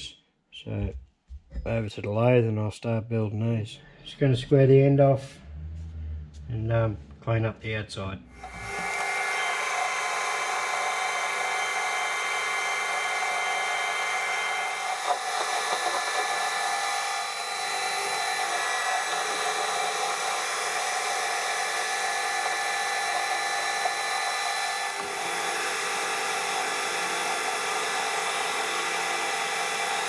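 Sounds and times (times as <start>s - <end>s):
cutting tool scraping metal: 8.4s - 30.0s
metal lathe whining: 8.4s - 30.0s.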